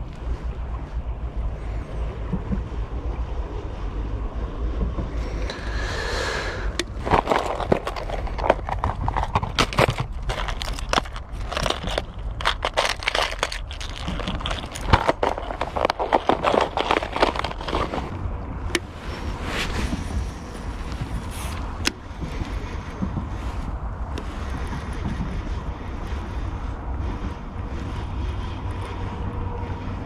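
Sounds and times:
wind rumble on microphone: 0:00.0 - 0:30.0
dry grass and twigs crunching: 0:06.8 - 0:21.7.

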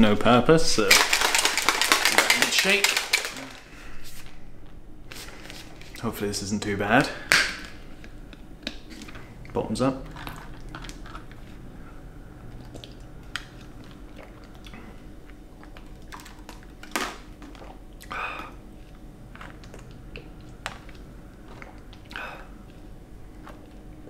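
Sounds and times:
person gulping a drink: 0:12.5 - 0:23.7.

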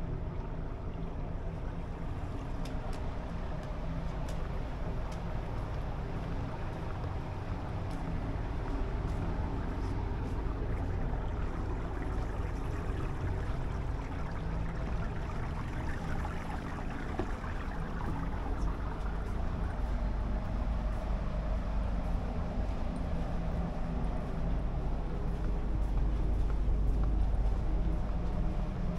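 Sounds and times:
ship machinery humming: 0:01.0 - 0:28.9.

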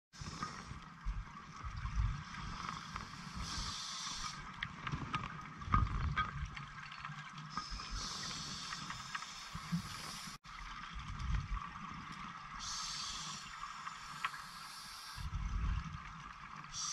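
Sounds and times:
regulator air hiss: 0:02.4 - 0:04.4, 0:07.6 - 0:10.4, 0:12.6 - 0:15.3.

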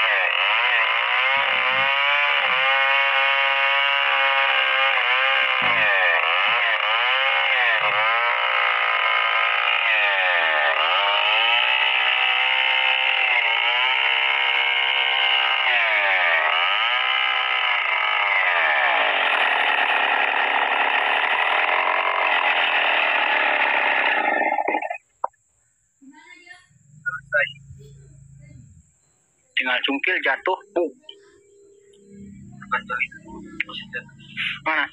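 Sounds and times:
chainsaw cutting through log: 0:00.0 - 0:25.0.

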